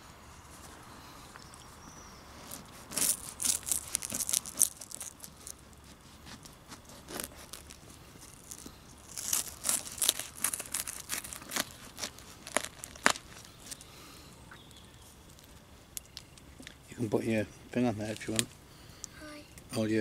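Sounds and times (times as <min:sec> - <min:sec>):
crust cracking: 0:02.4 - 0:16.9, 0:17.8 - 0:19.2
knife sawing through bread crust: 0:05.8 - 0:07.6.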